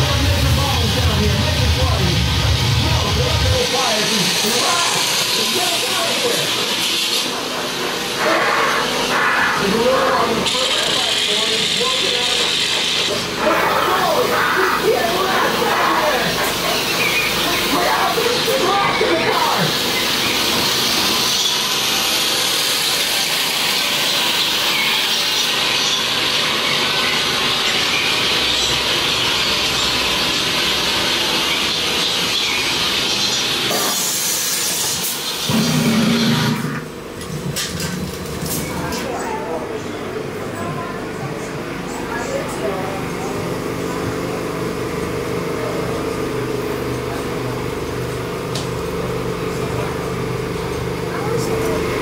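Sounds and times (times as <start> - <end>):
loud hissing rush: 0.0 - 26.6, 27.4 - 37.6
machine hum with low tones: 0.0 - 52.0.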